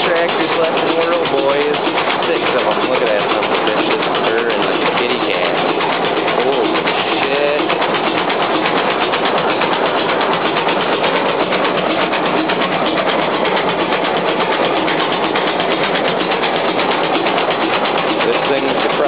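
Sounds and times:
tractor engine clattering: 0.0s - 19.0s.

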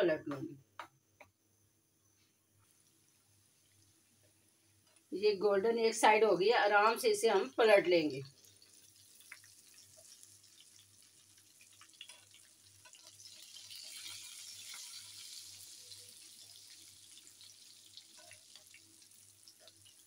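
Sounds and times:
food deep-frying in oil: 2.6s - 20.0s.

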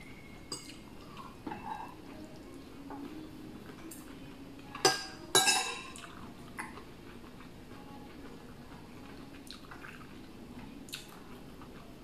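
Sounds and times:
faint eating sounds: 0.0s - 12.0s
metal spoon clinking on dish: 0.5s - 0.8s, 4.7s - 6.7s.

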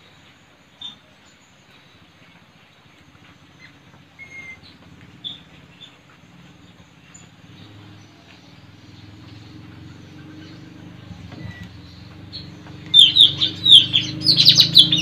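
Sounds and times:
parrots chirping: 3.6s - 6.0s, 9.5s - 15.0s.

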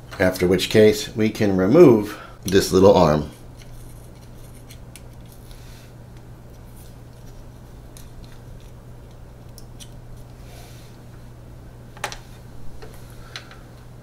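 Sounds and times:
hex key clicks and scrapes: 3.6s - 5.4s.

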